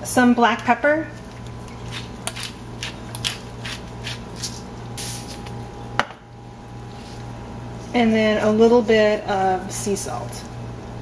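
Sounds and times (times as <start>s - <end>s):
pepper mill grinding: 1.6s - 5.4s.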